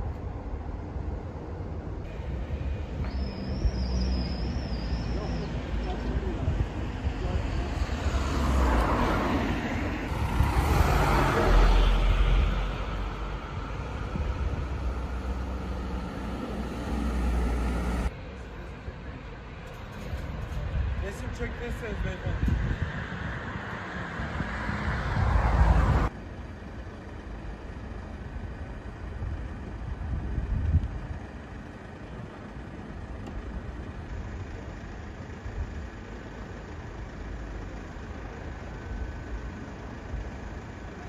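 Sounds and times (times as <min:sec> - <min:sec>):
traffic hum: 0:00.0 - 0:41.0
vehicle passing with low rumble: 0:00.3 - 0:41.0
vehicle passing: 0:05.9 - 0:18.1, 0:22.7 - 0:26.1.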